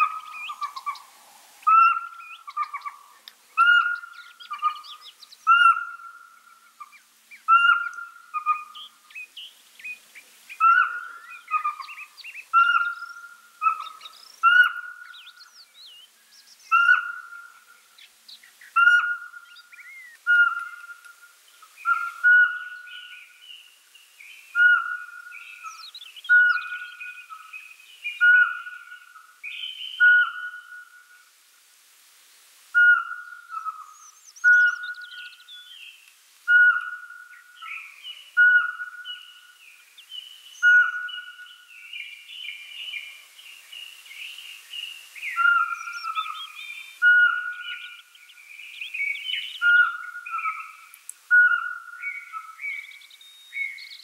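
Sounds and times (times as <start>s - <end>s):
owl whistled toots: 18.8s - 19.4s, 20.2s - 21.2s, 21.8s - 23.2s, 24.6s - 27.2s, 28.1s - 31.0s, 32.8s - 35.4s, 36.5s - 39.3s, 40.6s - 41.6s, 45.2s - 48.0s, 49.4s - 52.8s.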